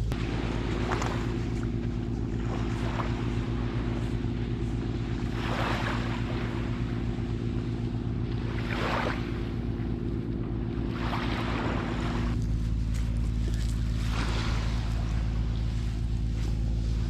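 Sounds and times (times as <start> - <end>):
boat engine humming: 0.0 - 17.0
water splashing: 0.0 - 17.0.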